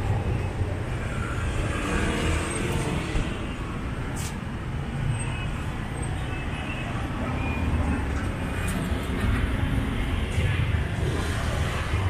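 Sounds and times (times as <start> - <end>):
traffic engines and road noise: 0.0 - 12.0.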